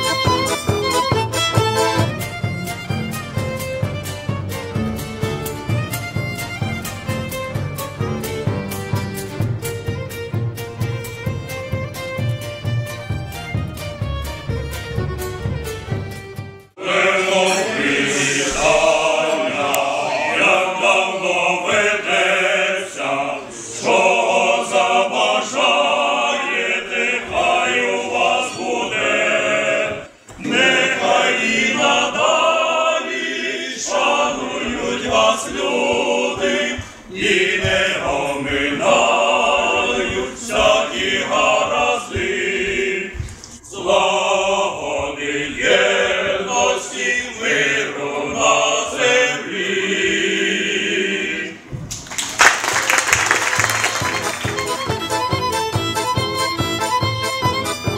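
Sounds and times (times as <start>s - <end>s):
choir singing: 16.7s - 51.8s.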